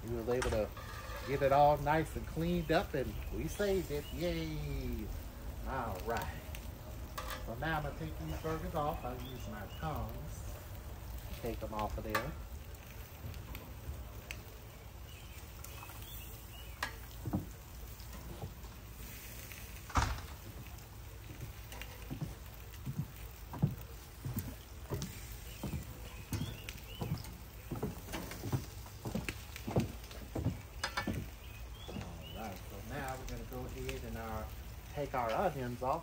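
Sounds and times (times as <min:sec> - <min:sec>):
metal tongs clicking on grill: 0:11.8 - 0:13.1, 0:30.7 - 0:31.3.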